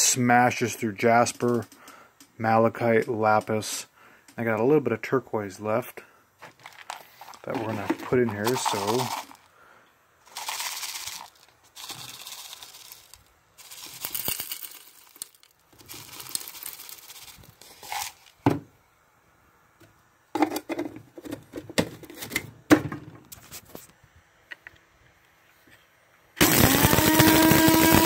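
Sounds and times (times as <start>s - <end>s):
small chips pouring and rattling: 6.4s - 9.5s, 10.2s - 18.4s, 26.4s - 28.0s.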